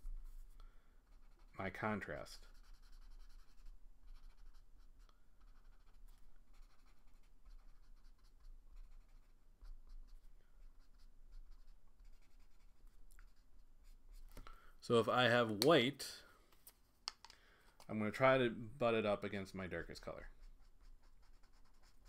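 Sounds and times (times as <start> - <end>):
marker rubbing across paper: 1.1 - 14.4, 19.8 - 22.0.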